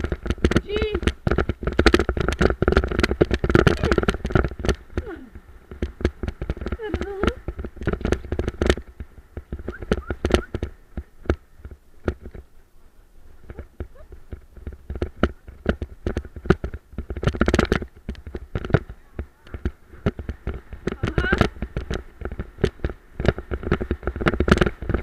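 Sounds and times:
cart rattling over rough trail: 0:00.0 - 0:25.0.

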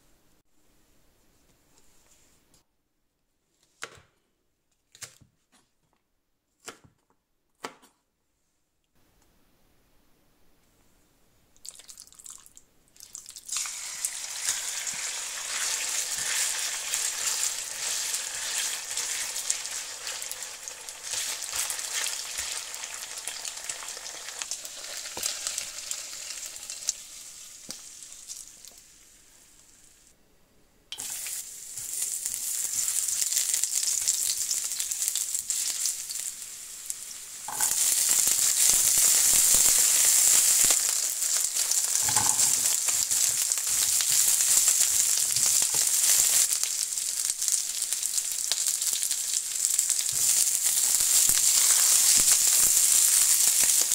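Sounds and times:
meat sizzling in hot oil: 0:13.0 - 0:29.1, 0:31.0 - 0:53.9.

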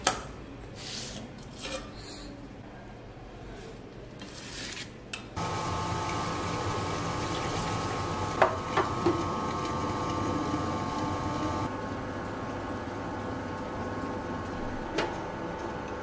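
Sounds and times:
wet grinder motor humming: 0:05.4 - 0:11.7.

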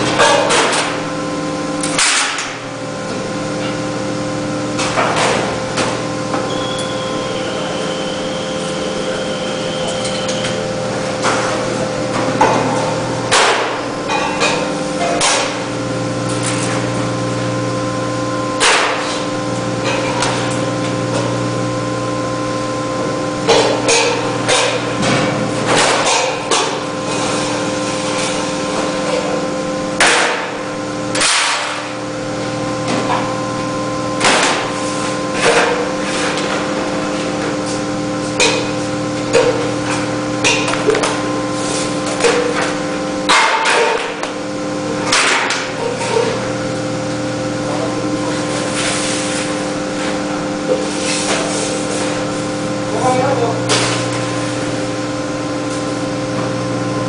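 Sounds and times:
metal cutting machine humming: 0:00.0 - 0:57.0
noisy machine bursts: 0:06.4 - 0:11.0.

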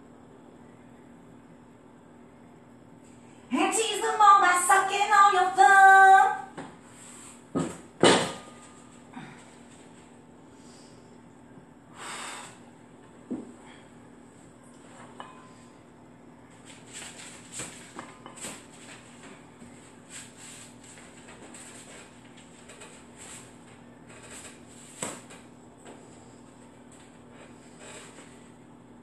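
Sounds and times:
woman breathing hard: 0:09.0 - 0:09.8, 0:11.9 - 0:12.7.

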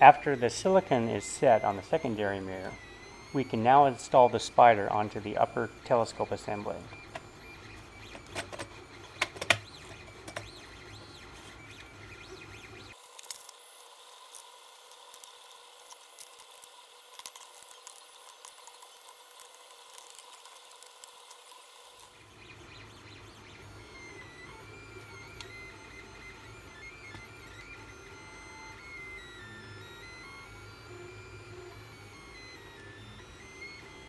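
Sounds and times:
plastic parts clicking and knocking: 0:08.0 - 0:10.6
small ticks: 0:12.9 - 0:22.2.

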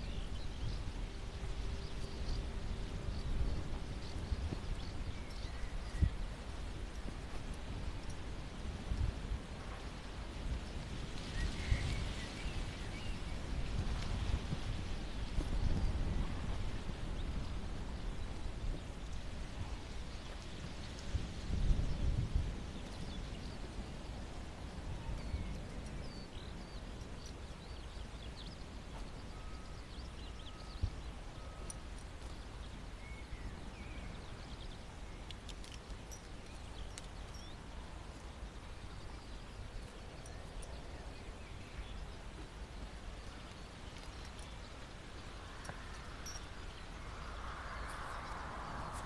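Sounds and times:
horses rustling: 0:00.0 - 0:21.6
wind rumbling on microphone: 0:00.0 - 0:49.0
faint bird chirps: 0:24.9 - 0:42.3.

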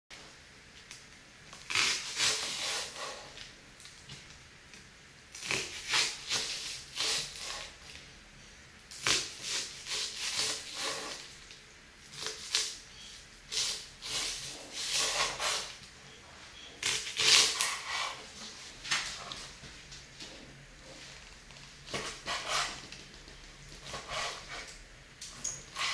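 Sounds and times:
knife slicing onion on wooden board: 0:01.7 - 0:03.4, 0:09.0 - 0:11.2, 0:13.5 - 0:15.7, 0:21.9 - 0:22.8, 0:23.8 - 0:24.7.

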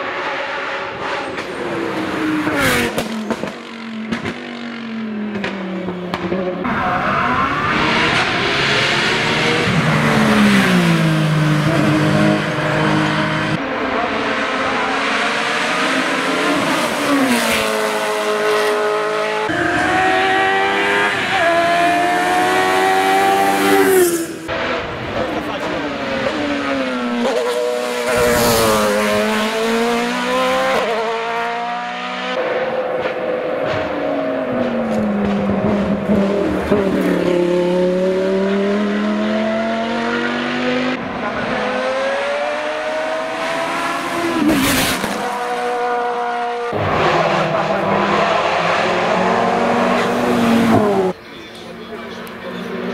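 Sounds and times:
race car engine at high revs: 0:00.0 - 0:52.9.

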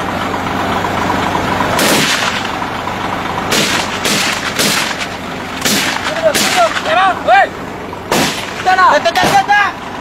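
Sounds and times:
steady low hum: 0:00.0 - 0:10.0
rifle shots: 0:01.8 - 0:02.4, 0:03.5 - 0:05.0, 0:05.6 - 0:06.7, 0:08.1 - 0:08.6.

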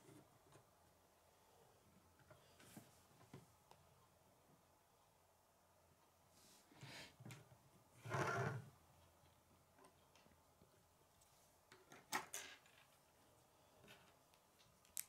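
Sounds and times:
plastic model scraping on wood: 0:08.0 - 0:08.6.

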